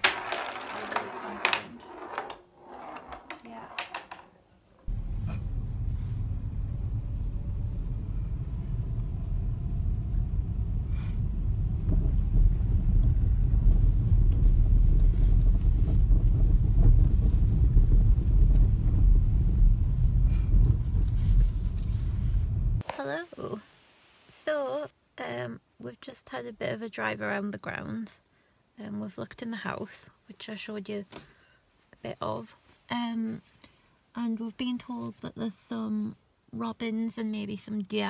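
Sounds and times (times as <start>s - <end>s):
car road and engine rumble: 4.9s - 22.8s.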